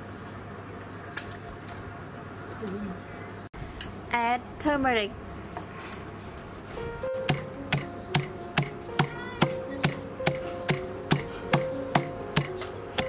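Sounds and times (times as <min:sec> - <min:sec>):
pestle pounding in a mortar: 0:07.3 - 0:13.0.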